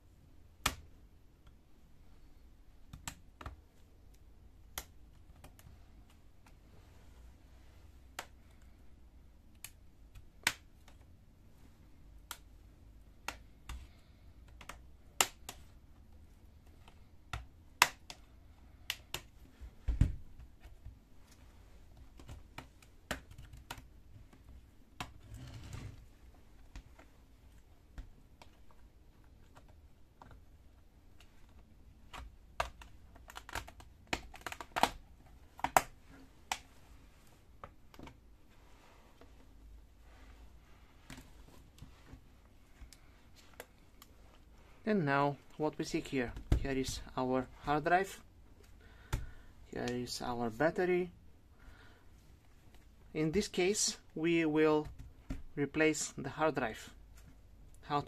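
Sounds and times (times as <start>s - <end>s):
plastic clips clicking loose: 31.2s - 35.0s.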